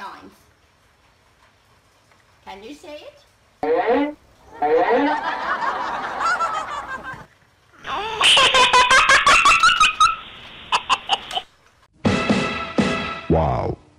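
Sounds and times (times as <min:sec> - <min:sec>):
child giggling: 0:07.9 - 0:11.4.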